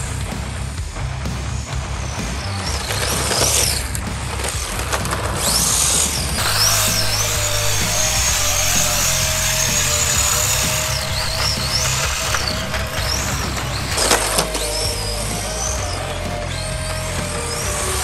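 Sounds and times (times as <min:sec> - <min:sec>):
background music: 0:00.0 - 0:18.0
electric motor whining: 0:04.6 - 0:18.0.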